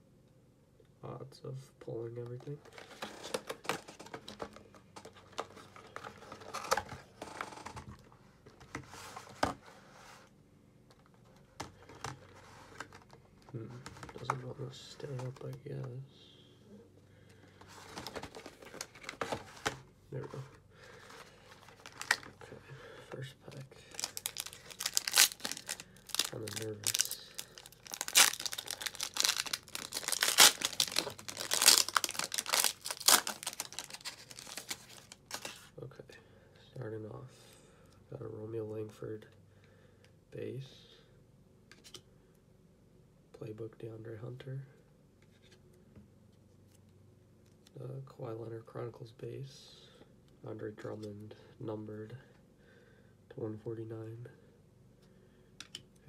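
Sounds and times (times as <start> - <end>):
cardboard rustling: 2.6 - 7.8, 17.6 - 22.5, 23.9 - 35.7
foil wrapper tearing and crinkling: 23.9 - 35.4
cardboard box opening: 24.0 - 35.6.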